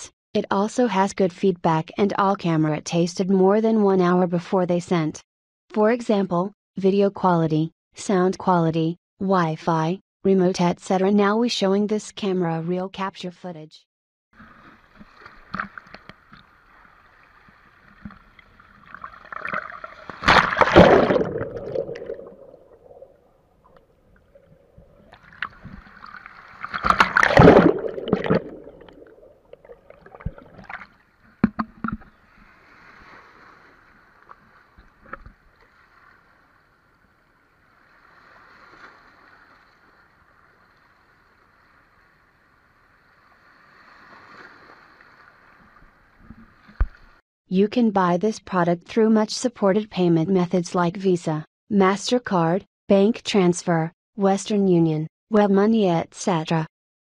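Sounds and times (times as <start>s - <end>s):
seawater sloshing and rushing: 18.2s - 31.0s.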